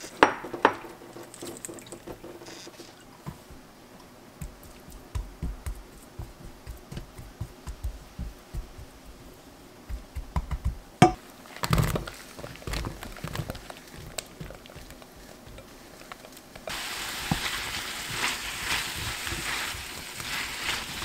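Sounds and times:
food sizzling in a pan: 16.7 - 21.0.

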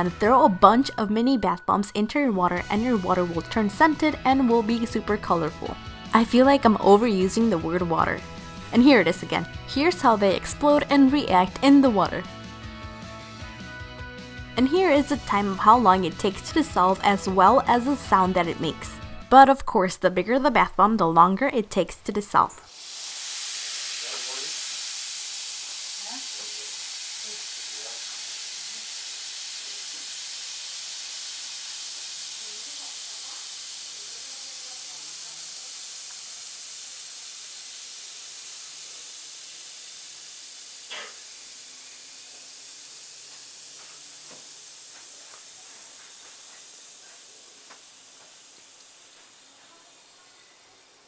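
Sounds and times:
bath bombs fizzing: 22.7 - 50.7.

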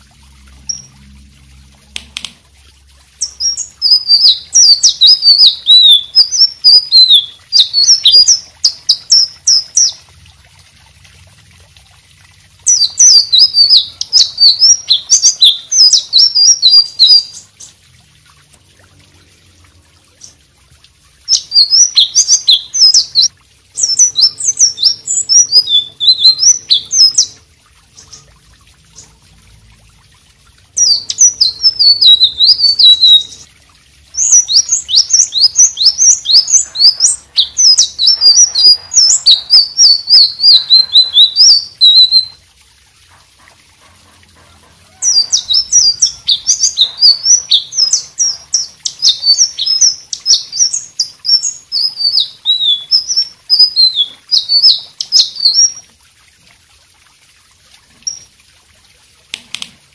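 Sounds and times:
bird singing twittering song: 0.5 - 1.1, 3.2 - 10.0, 12.7 - 17.8, 21.3 - 28.3, 30.8 - 33.5, 34.2 - 42.4, 45.0 - 55.8.

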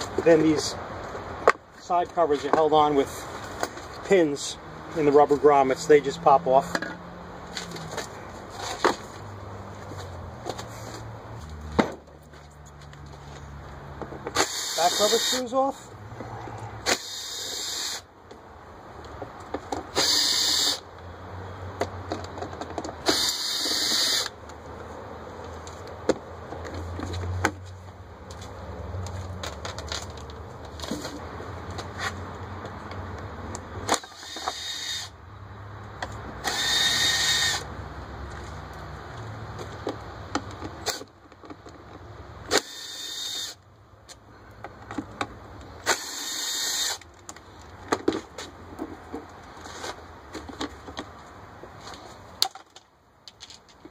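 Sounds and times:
cordless drill spinning screws: 14.4 - 15.4, 16.9 - 18.0, 19.9 - 20.8, 23.0 - 24.3, 34.0 - 35.1, 36.4 - 37.6, 42.5 - 43.6, 45.9 - 47.0.

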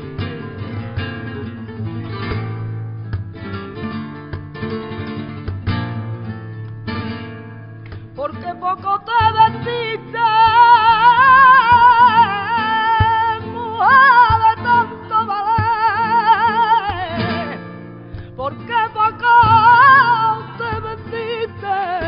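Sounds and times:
flamenco guitars strumming: 0.0 - 22.0
woman singing flamenco: 0.0 - 22.0.

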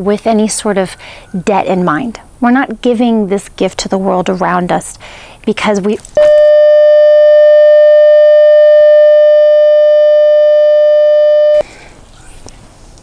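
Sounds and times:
steady electronic beep tone: 6.2 - 11.6.

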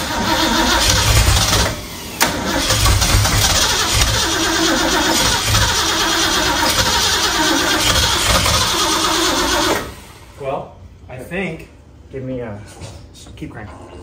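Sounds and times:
engine starter cranking: 0.0 - 10.1.

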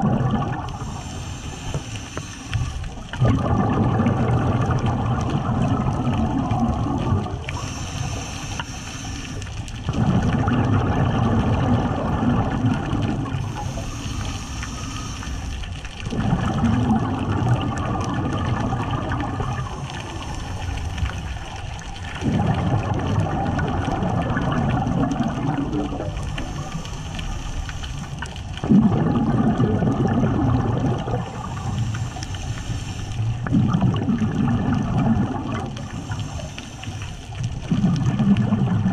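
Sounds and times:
exhaled bubbles bursting: 0.0 - 1.8, 2.5 - 8.3, 9.4 - 32.2, 33.2 - 36.6, 37.2 - 38.9
regulator hissing inhale: 0.7 - 3.1, 7.4 - 9.8, 13.4 - 15.9, 19.5 - 21.8, 26.1 - 28.4, 31.2 - 33.5, 35.7 - 37.4.

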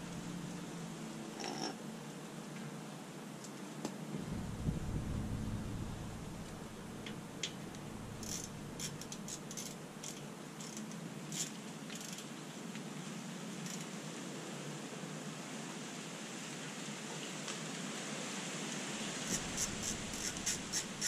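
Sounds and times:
low rumble: 4.1 - 9.3.

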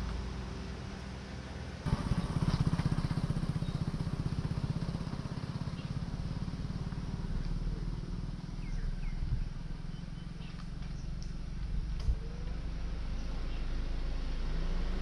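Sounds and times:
traffic hum: 0.0 - 15.0
wind: 0.0 - 15.0
motorcycle engine throbbing: 1.9 - 13.7.

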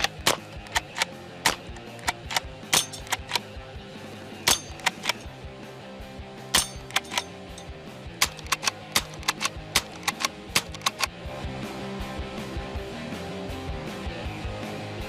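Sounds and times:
rifle lever cycling: 0.0 - 3.5, 4.5 - 5.3, 6.6 - 11.2
rifle shots: 0.0 - 3.5, 4.5 - 5.3, 6.6 - 11.1
background music with ticking beat: 0.0 - 3.7, 4.4 - 12.8.

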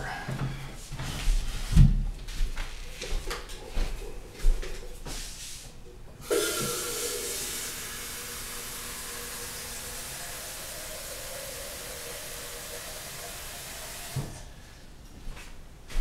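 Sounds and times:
water running from a tap: 6.2 - 14.4.

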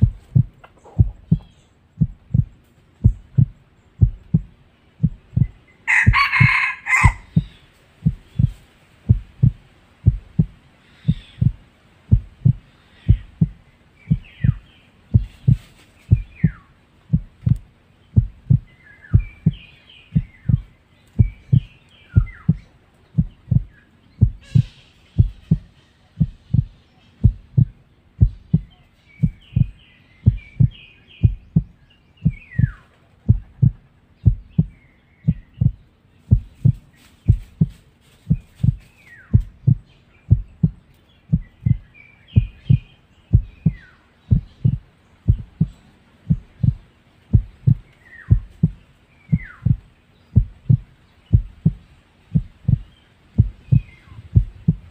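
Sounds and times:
heartbeat low double thump: 0.0 - 54.9
birds chirping and whistling: 10.3 - 11.6, 12.2 - 17.6, 18.2 - 54.9.

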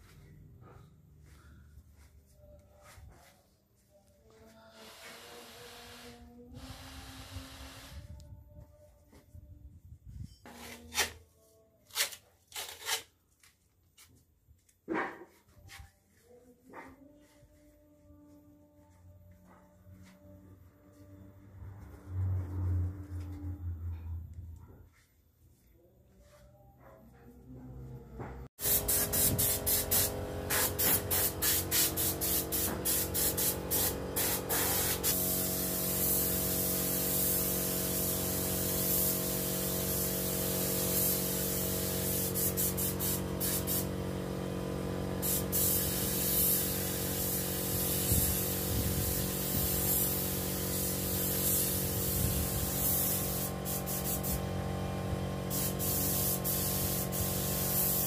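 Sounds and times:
spray gun hissing: 4.7 - 8.0, 28.6 - 54.5, 55.4 - 58.0.

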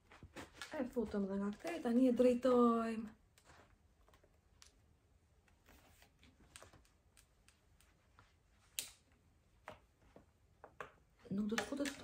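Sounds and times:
plastic clicks: 10.7 - 12.0.

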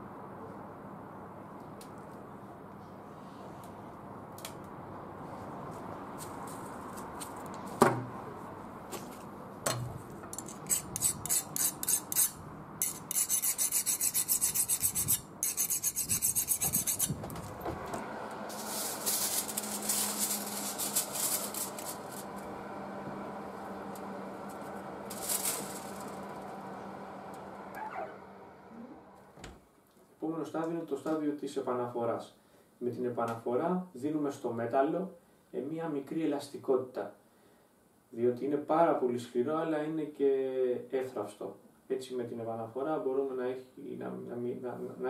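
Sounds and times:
file scraping steel blade: 10.3 - 17.2.

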